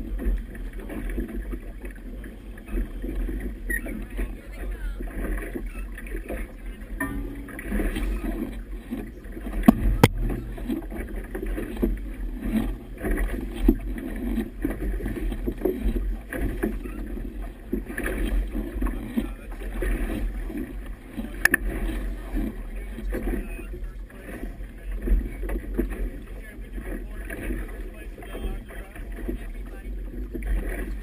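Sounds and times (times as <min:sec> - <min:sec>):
water washing against boat hull: 0:00.0 - 0:31.0
wind buffeting microphone: 0:06.2 - 0:23.4
sharp knocks: 0:09.6 - 0:10.9.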